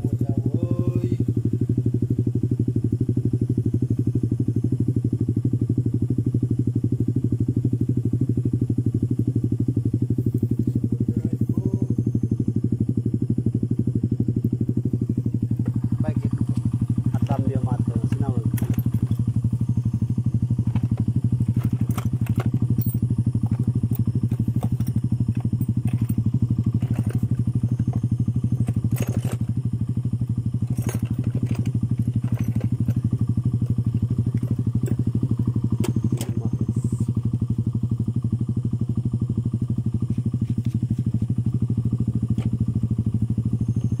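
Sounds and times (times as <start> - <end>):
motorcycle engine idling: 0.0 - 44.0.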